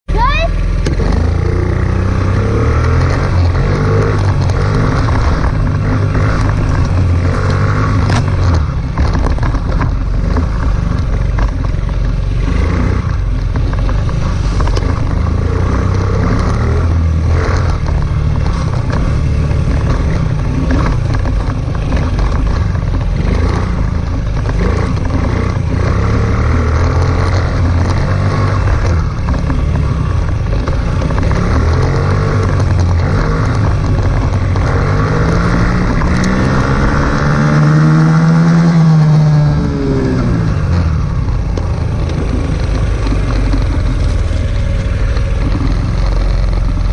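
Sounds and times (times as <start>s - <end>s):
knocks and rattles over rough track: 0.1s - 46.9s
dirt bike engine revving: 0.2s - 46.9s.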